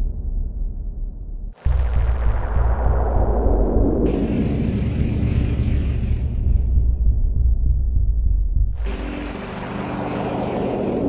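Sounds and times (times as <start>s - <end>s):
deep rumbling bass drone: 0.0s - 11.0s
hissing noise layer: 1.7s - 6.8s, 8.8s - 11.0s.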